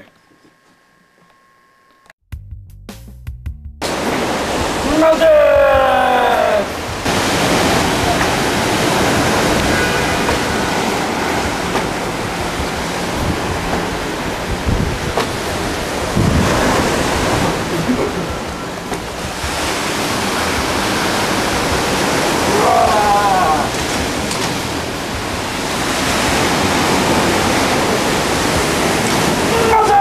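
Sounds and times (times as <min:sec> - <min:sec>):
rushing outdoor noise: 0:03.8 - 0:30.0
low thumps: 0:06.7 - 0:20.0.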